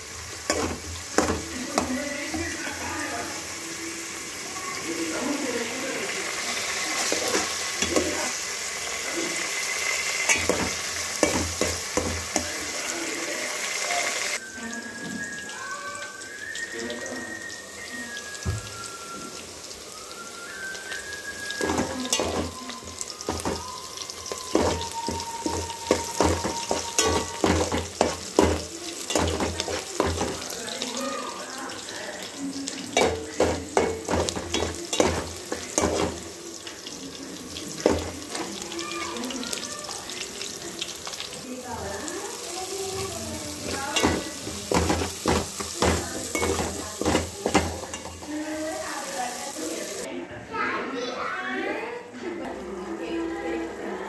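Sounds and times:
onions sizzling in a pot: 0.0 - 54.0
spoon scraping and knocking pot: 0.5 - 2.6, 7.0 - 8.3, 10.3 - 12.5, 21.6 - 22.6, 23.3 - 23.6, 24.5 - 30.5, 33.0 - 36.2, 43.6 - 48.3.

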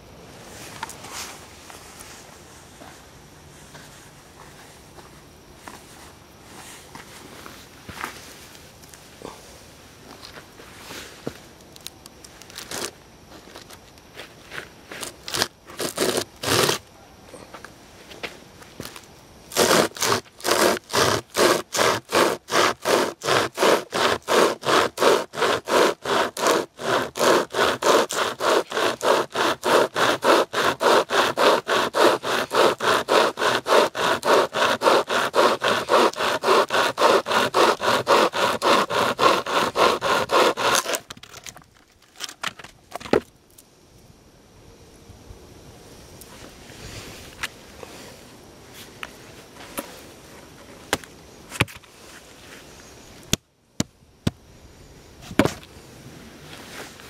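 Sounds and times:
hand chainsaw sawing log: 15.0 - 16.8, 19.5 - 41.1.

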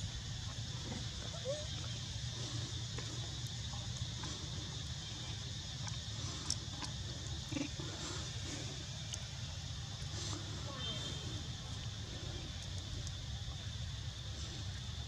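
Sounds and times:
high insect drone: 0.0 - 15.0
faint clicks: 5.8 - 7.7, 9.0 - 9.3, 12.5 - 13.2.

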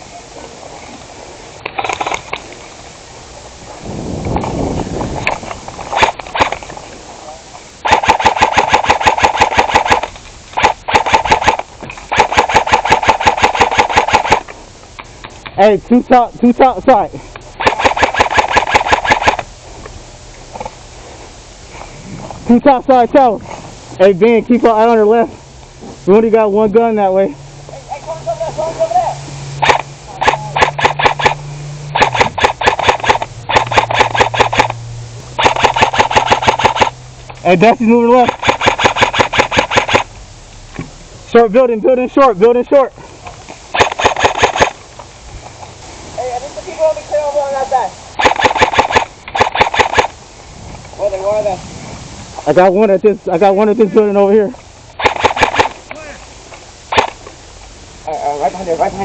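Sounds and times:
steady low hum: 0.0 - 59.0
airsoft gun full-auto bursts: 5.9 - 6.6, 7.8 - 14.5, 17.6 - 19.5, 29.6 - 34.8, 35.4 - 37.0, 38.0 - 40.1, 43.7 - 44.8, 48.2 - 50.2, 55.0 - 55.8
gearbox whir: 29.6 - 41.0.

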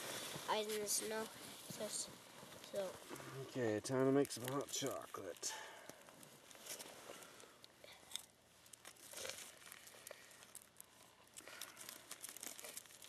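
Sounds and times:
packet crinkling and rustling: 3.9 - 13.0.

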